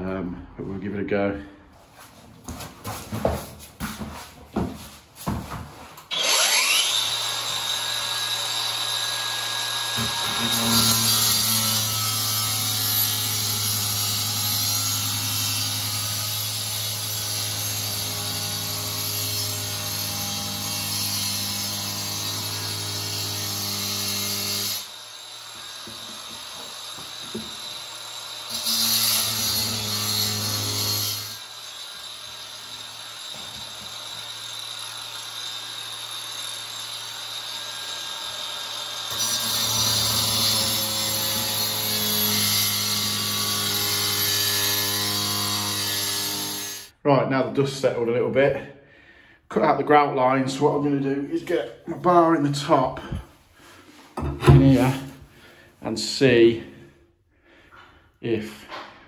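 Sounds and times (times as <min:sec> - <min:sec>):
tile cutter cutting grout: 0:06.0 - 0:46.9.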